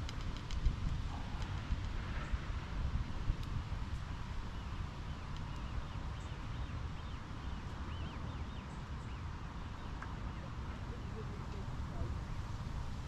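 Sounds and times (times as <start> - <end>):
wind on the microphone: 0.0 - 13.0
bird chirping: 4.5 - 11.3.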